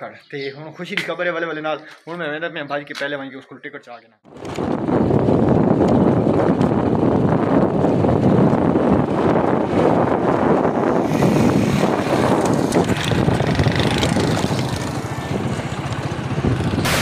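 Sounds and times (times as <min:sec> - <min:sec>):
motorcycle engine running: 0:04.3 - 0:17.0
wind rushing over microphone: 0:04.3 - 0:17.0.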